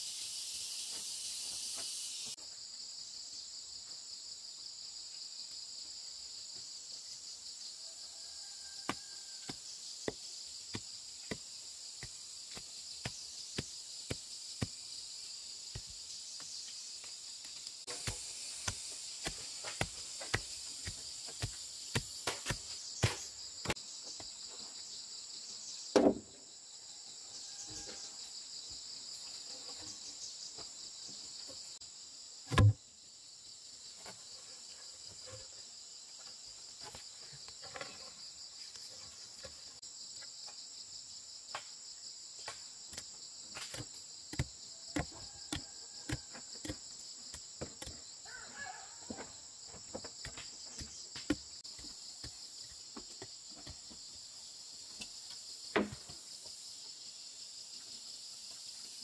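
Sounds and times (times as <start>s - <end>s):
high-pitched insect chorus: 0.0s - 59.0s
heavy thumps of logs: 17.9s - 23.8s, 26.0s - 26.4s, 32.5s - 32.8s, 49.1s - 54.1s, 55.7s - 56.2s
wood knocks: 26.0s - 26.4s, 32.5s - 32.8s.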